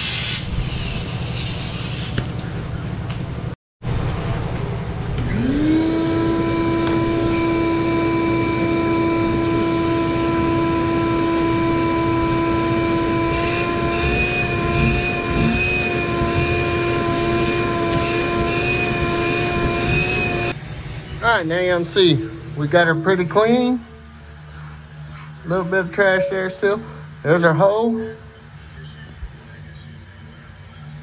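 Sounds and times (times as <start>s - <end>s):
vacuum cleaner motor whining: 5.0s - 20.6s.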